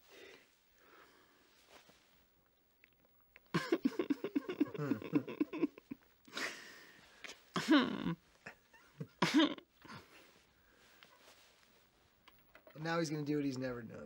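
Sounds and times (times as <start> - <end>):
man laughing: 3.5 - 6.6.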